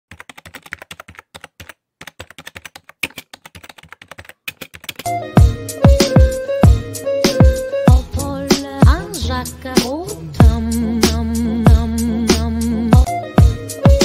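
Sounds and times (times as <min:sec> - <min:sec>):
keyboard key clicks: 0:00.1 - 0:05.1
hip-hop music with deep bass: 0:05.1 - 0:14.0.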